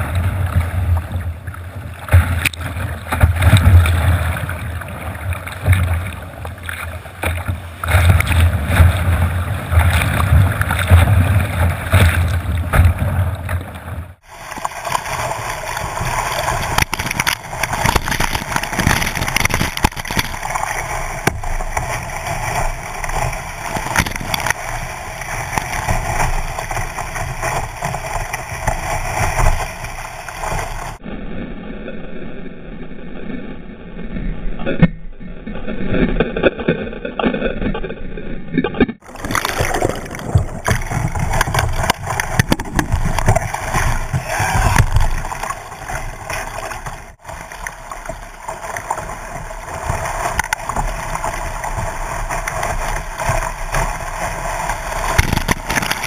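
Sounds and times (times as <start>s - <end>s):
whitewater rapids rushing: 14.2s - 31.0s, 39.0s - 56.0s.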